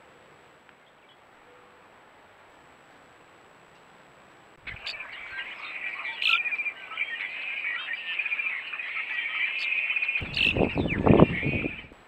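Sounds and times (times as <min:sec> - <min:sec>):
birds chirping: 0:04.6 - 0:12.0.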